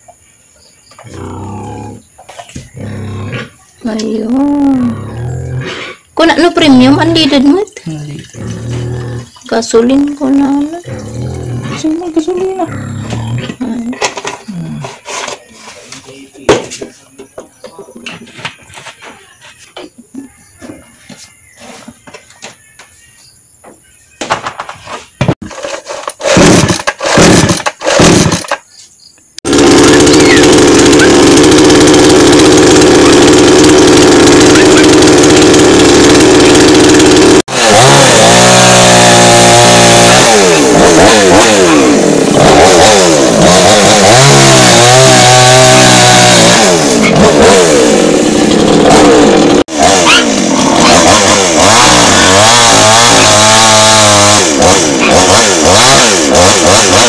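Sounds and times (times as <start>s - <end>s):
chainsaw starting and revving: 4.8s - 7.4s, 8.4s - 15.4s, 25.4s - 28.6s, 29.5s - 57.0s.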